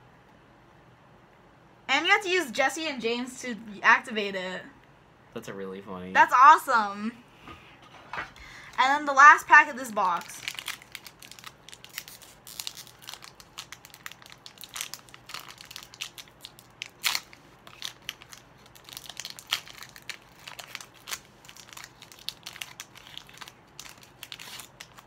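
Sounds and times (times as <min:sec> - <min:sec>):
foil wrapper crinkling: 0:10.0 - 0:25.0.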